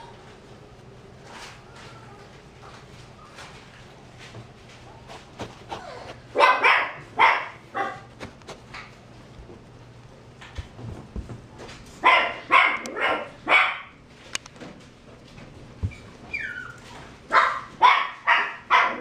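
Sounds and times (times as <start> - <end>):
dog barking: 5.8 - 8.1, 12.0 - 13.9, 17.3 - 19.0.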